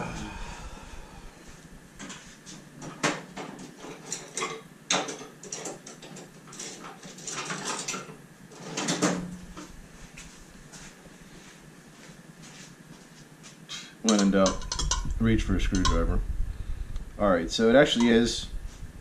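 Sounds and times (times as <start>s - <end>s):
hard objects knocking and clattering: 14.1s - 16.0s.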